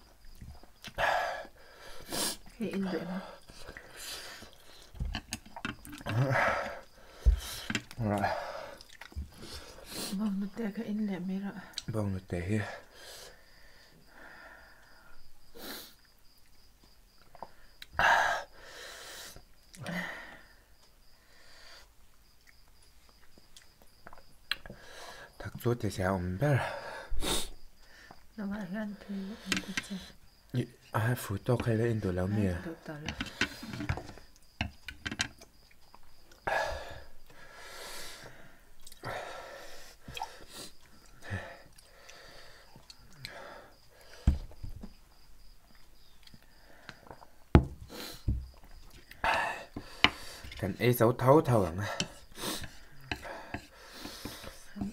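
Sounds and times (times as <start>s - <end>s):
person sniffing: 1.0s - 2.5s, 15.5s - 16.0s, 27.1s - 27.6s, 39.6s - 40.8s, 47.9s - 48.3s, 52.2s - 54.7s
chewing: 8.7s - 9.4s, 35.4s - 36.4s, 38.8s - 39.0s.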